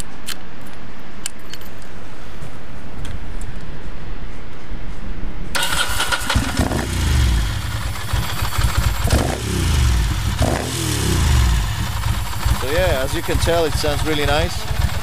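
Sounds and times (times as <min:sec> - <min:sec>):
motorcycle engine revving: 0:05.6 - 0:15.0.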